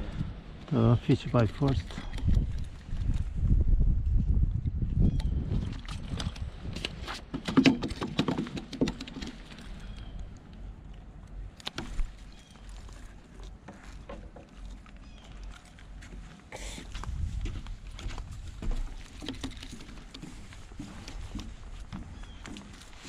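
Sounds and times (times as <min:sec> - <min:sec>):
fish knocking on wooden boards: 0:07.3 - 0:09.6.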